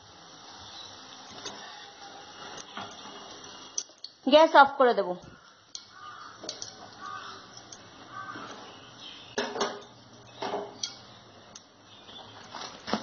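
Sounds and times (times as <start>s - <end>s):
wire strainer clinking on metal: 5.7s - 7.9s, 9.4s - 11.7s.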